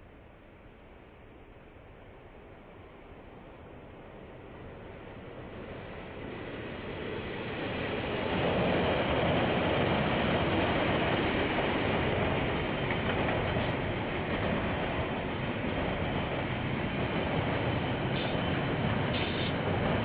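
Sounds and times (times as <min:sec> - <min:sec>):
train passing: 0:00.0 - 0:20.0
wheels rumbling on rails: 0:01.9 - 0:20.0.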